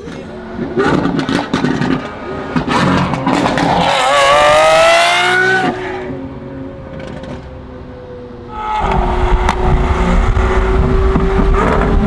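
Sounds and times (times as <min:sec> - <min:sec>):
car engine revving: 0:00.0 - 0:06.2, 0:08.5 - 0:12.0
exhaust pops and bangs: 0:00.8 - 0:03.8.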